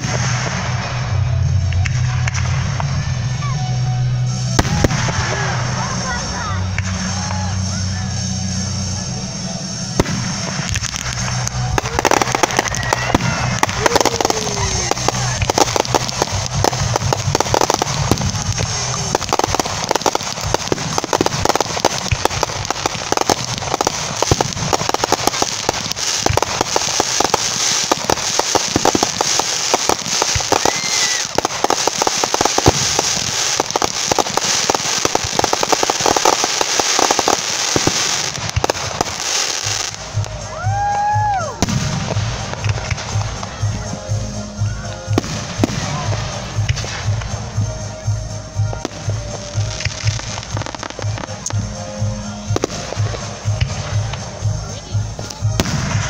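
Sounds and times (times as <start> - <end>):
firework crackling: 0.0 - 56.0
firework shells bursting: 9.9 - 54.6.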